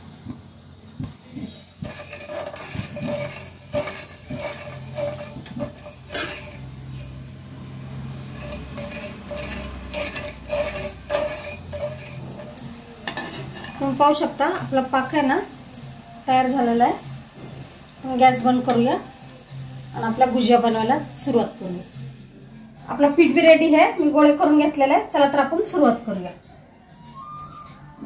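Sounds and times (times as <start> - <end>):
metal spoon scraping a saucepan: 1.3 - 7.3, 7.9 - 16.6.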